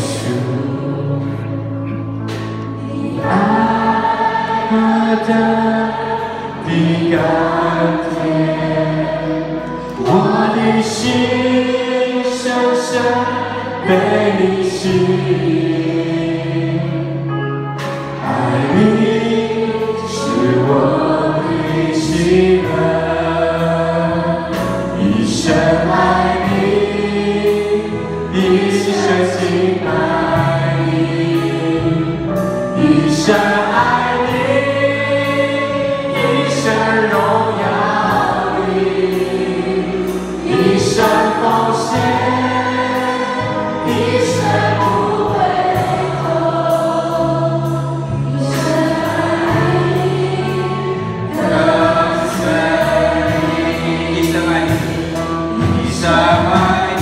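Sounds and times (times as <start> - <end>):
drums: 0.0 - 5.4, 9.3 - 57.0
keyboard: 0.0 - 57.0
man singing lead: 10.0 - 16.8, 53.4 - 57.0.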